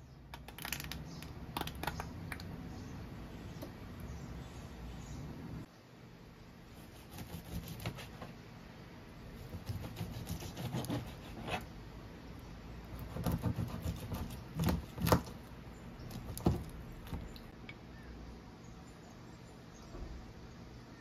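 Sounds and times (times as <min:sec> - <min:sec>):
knife crunching through crust: 0:09.4 - 0:11.6.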